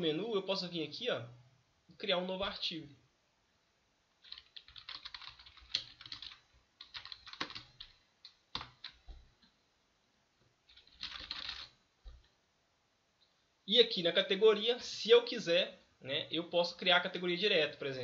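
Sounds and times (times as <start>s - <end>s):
computer keyboard typing: 4.2s - 9.2s, 10.7s - 12.3s.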